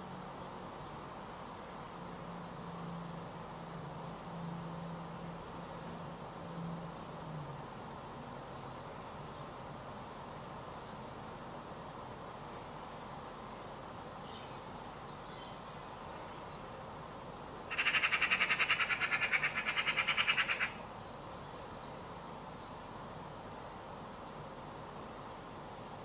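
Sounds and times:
magpie rattling chatter: 17.7 - 20.8.

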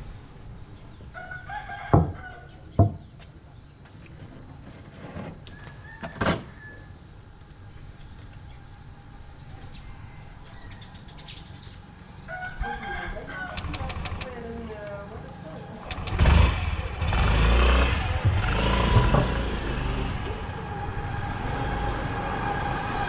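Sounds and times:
rooster crowing: 1.1 - 2.6, 5.5 - 7.0, 9.7 - 11.1, 12.2 - 14.2
steady high whine: 2.4 - 23.0.

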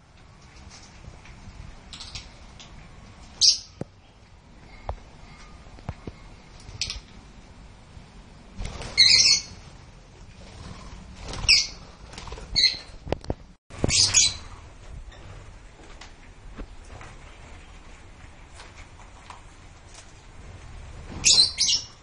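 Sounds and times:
lovebirds squawking: 8.9 - 9.6, 11.3 - 11.8, 12.6 - 12.9.

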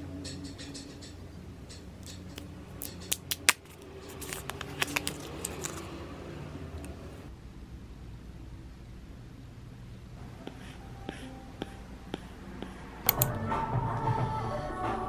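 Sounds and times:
packaging clicking and crinkling: 2.3 - 6.0.

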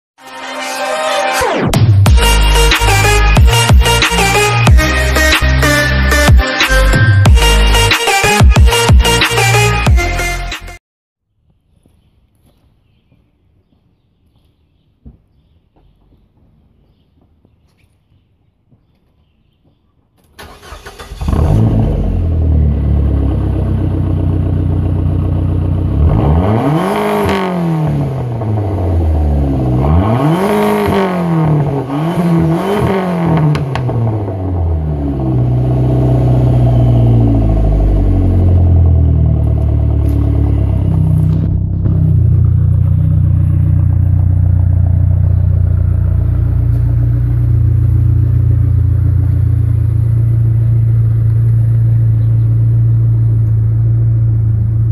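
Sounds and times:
car engine starting revving and idling: 20.4 - 54.9.

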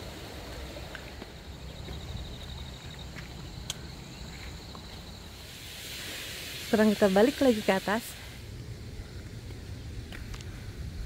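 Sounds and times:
insect trilling: 1.4 - 9.8
steady low rumble: 8.2 - 11.0.

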